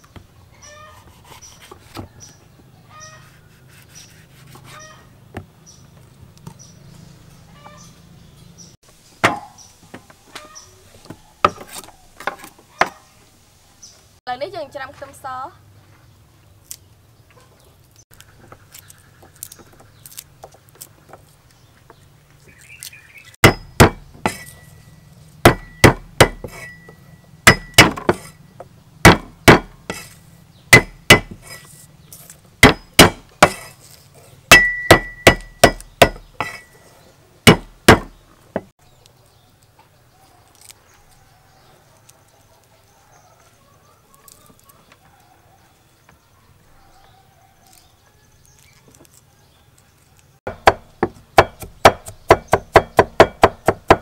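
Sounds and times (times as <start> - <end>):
garlic skins peeled by hand: 3.1 - 5.0, 17.8 - 23.4, 40.4 - 41.1, 47.6 - 50.4
knife chopping garlic on wood: 23.4 - 24.6, 25.4 - 28.4, 29.0 - 31.6, 32.6 - 33.8, 34.5 - 36.7, 37.4 - 38.7, 50.5 - 54.0.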